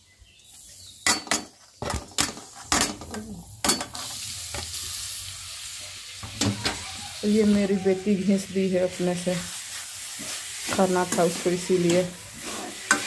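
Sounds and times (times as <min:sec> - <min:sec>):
carrots sizzling in ghee: 0:00.0 - 0:13.0
steel utensils clinking on pan: 0:01.0 - 0:04.1, 0:10.6 - 0:13.0.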